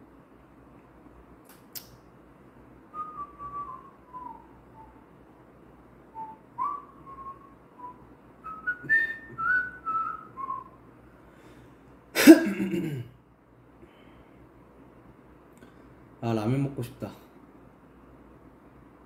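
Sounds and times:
man whistling a slow tune: 2.9s - 5.0s, 6.1s - 10.8s.

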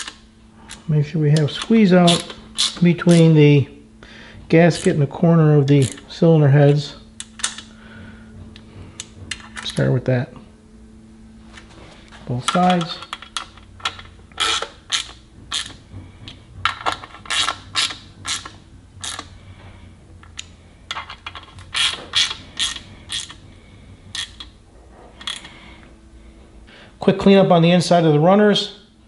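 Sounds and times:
hand ratchet clicking: 0.0s - 3.4s, 4.6s - 7.7s, 12.5s - 19.4s, 20.2s - 24.6s, 25.2s - 25.6s.

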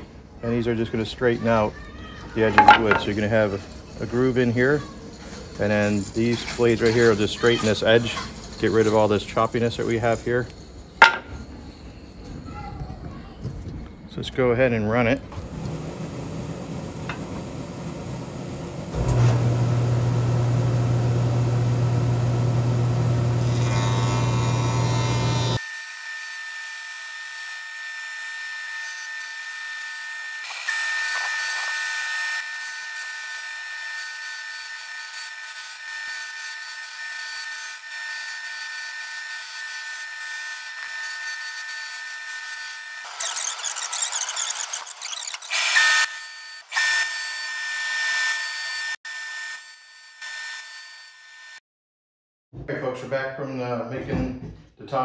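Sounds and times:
wood shaper cutter whining: 15.4s - 51.6s.

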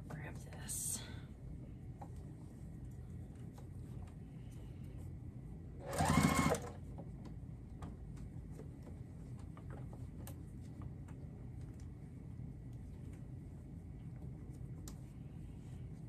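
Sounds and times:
sewing machine motor whine: 5.8s - 6.8s.

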